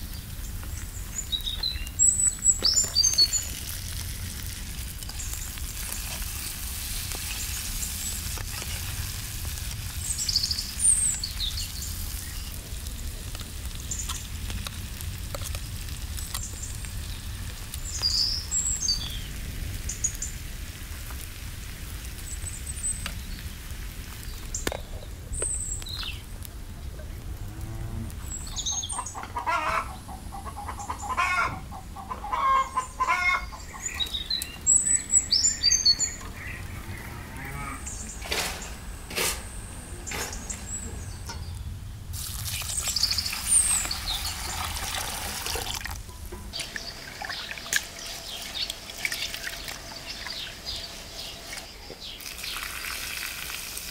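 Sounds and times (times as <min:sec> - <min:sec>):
small birds chirping: 0:00.0 - 0:14.8, 0:15.5 - 0:20.4, 0:22.1 - 0:26.4, 0:28.1 - 0:52.8
food sizzling in a pan: 0:00.1 - 0:26.2, 0:33.8 - 0:53.9
steady low rumble: 0:23.4 - 0:51.5
chicken clucking: 0:28.4 - 0:39.3.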